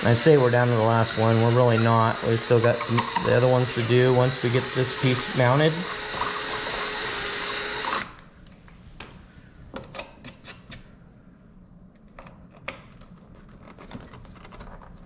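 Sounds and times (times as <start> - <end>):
cordless drill whining: 0.0 - 8.2.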